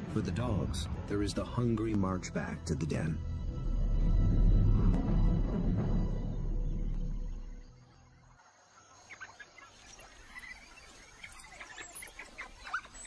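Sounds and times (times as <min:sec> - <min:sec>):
background music: 0:00.0 - 0:08.2
high-pitched animal chirps and squeaks: 0:09.1 - 0:13.0.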